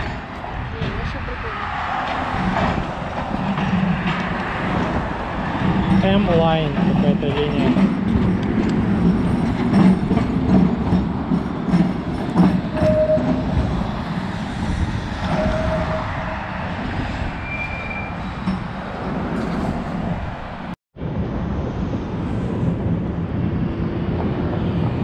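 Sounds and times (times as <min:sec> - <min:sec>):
streetcar rumbling on rails: 0:00.0 - 0:25.0.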